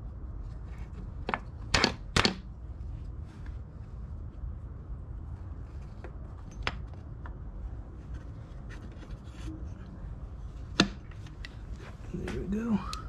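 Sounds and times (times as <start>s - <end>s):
low steady rumble: 0.0s - 13.0s
hands rubbing and clicking parts: 5.4s - 13.0s.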